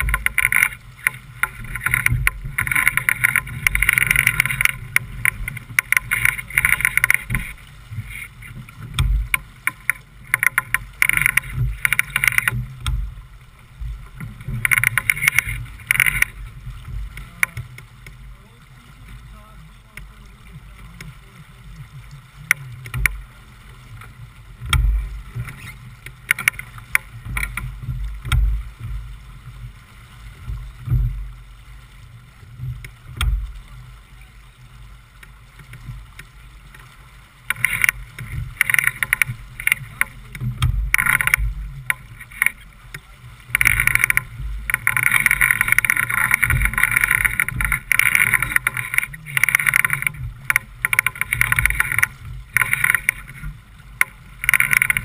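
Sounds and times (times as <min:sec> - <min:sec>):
wind gusts: 0:00.0 - 0:19.4, 0:35.8 - 0:55.0
rushing water and wind: 0:00.0 - 0:55.0
waves thumping hull: 0:00.0 - 0:55.0.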